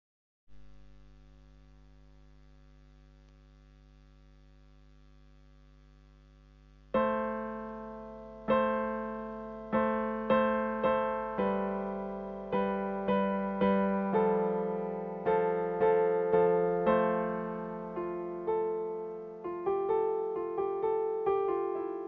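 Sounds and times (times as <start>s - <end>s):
faint low hum: 0.5s - 22.0s
piano chords: 7.0s - 22.0s.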